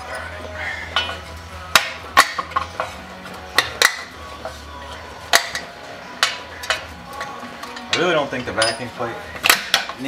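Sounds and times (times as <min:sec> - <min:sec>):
metal tools clinking: 0:05.3 - 0:10.0.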